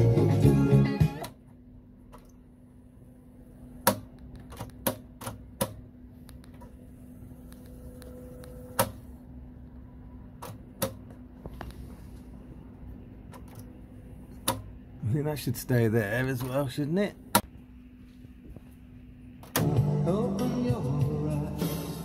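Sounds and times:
tape deck motor hum: 0:00.0 - 0:11.4, 0:18.5 - 0:22.0
mechanical clicks and clunks: 0:03.8 - 0:06.8, 0:07.5 - 0:09.1, 0:10.3 - 0:11.2, 0:13.2 - 0:14.8, 0:19.4 - 0:19.8.

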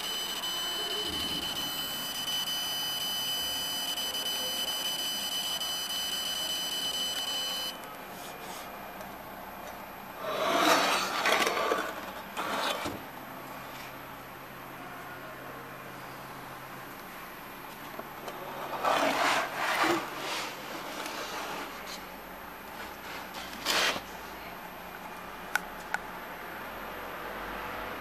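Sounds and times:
laser engraver high-pitched whine: 0:00.0 - 0:07.8.

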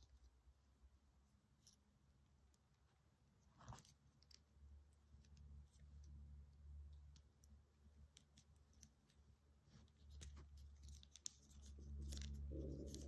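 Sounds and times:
plastic toy parts clicking: 0:10.1 - 0:13.0.

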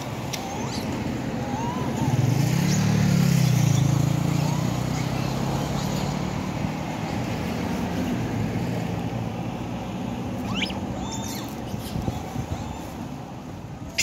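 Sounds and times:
monkeys squealing: 0:00.0 - 0:07.3, 0:10.4 - 0:14.0
motorcycle engine passing: 0:01.5 - 0:08.1.

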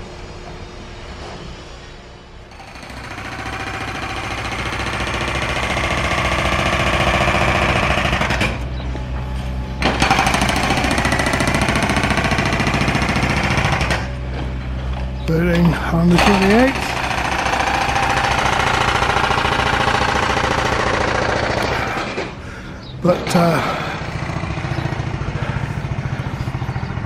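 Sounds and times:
powered breaker hammering: 0:02.5 - 0:08.7, 0:09.8 - 0:14.6, 0:15.6 - 0:22.4, 0:23.2 - 0:27.0.

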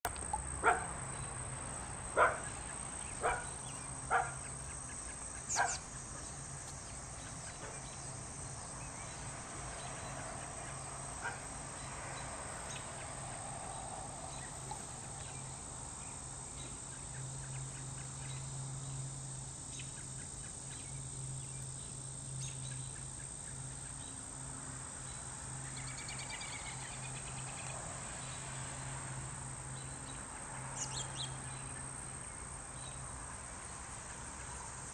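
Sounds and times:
insects droning: 0:00.0 - 0:34.9
dog barking: 0:00.6 - 0:00.9, 0:02.2 - 0:02.5, 0:03.2 - 0:03.5, 0:04.1 - 0:04.4, 0:05.5 - 0:05.8, 0:11.2 - 0:11.4.

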